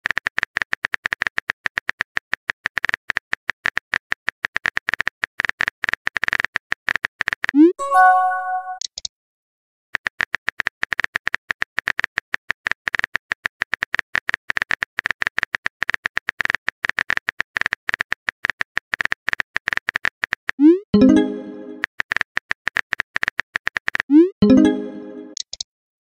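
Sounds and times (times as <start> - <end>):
message chime: 7.6 - 8.8, 21.0 - 21.8, 24.4 - 25.4.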